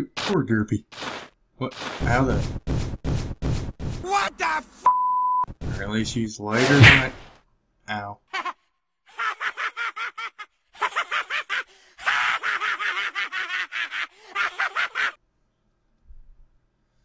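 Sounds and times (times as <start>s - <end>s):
cartoon boy laughing: 8.3s - 15.2s.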